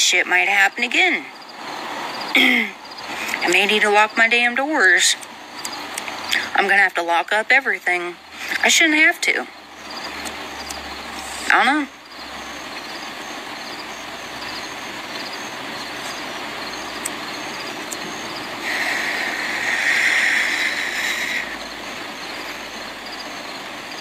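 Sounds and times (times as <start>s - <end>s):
steady hiss: 0.1s - 24.0s
high insect chirps: 0.6s - 4.4s, 5.2s - 6.5s, 8.2s - 24.0s
loud hissing noise: 7.9s - 24.0s.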